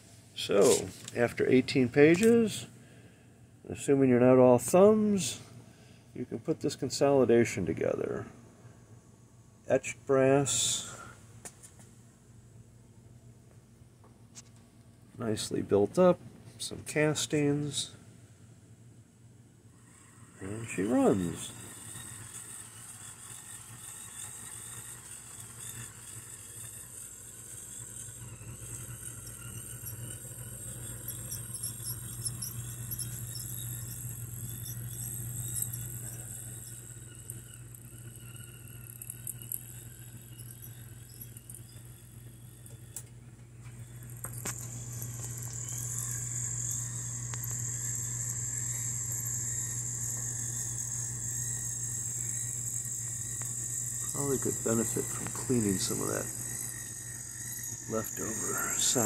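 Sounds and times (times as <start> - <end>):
model train motor humming: 0.0 - 3.0, 19.7 - 59.0.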